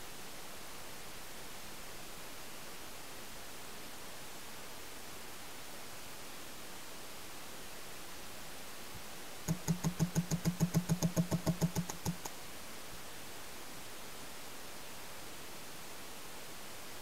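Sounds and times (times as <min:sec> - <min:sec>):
steady hiss: 0:00.0 - 0:17.0
paintball marker firing rapidly: 0:09.5 - 0:12.3.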